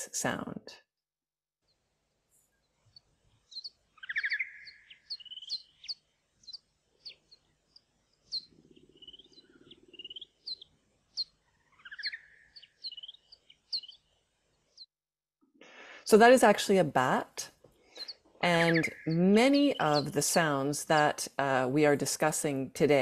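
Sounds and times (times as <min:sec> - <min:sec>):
bat chirps: 0:03.5 - 0:14.0, 0:17.9 - 0:20.3.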